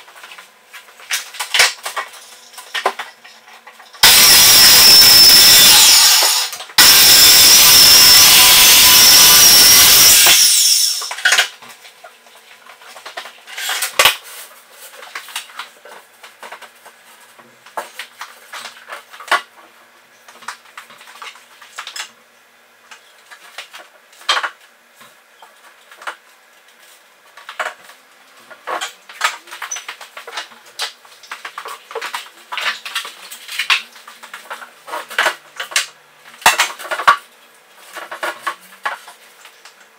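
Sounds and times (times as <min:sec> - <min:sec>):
circular saw running: 0:04.0 - 0:11.2.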